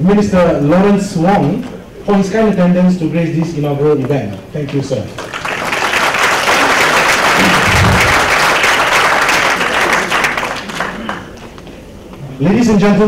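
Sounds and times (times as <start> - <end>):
audience applauding: 5.2 - 11.6.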